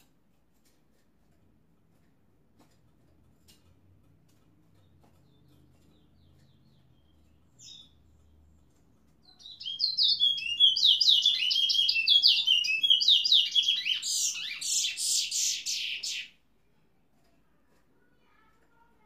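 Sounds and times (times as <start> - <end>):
finch singing high whistles: 9.5 - 16.3.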